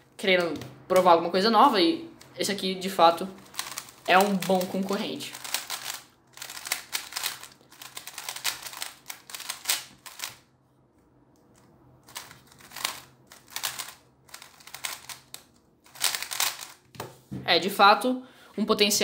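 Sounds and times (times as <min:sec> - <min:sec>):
puzzle cube clicking: 0:03.4 - 0:10.4, 0:11.4 - 0:16.8.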